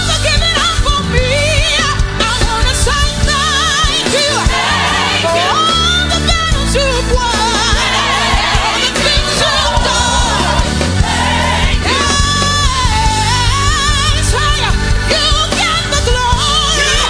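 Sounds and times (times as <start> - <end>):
gospel band playing: 0.0 - 17.0
woman singing lead: 0.0 - 17.0
backing singers: 3.6 - 14.2, 16.3 - 17.0.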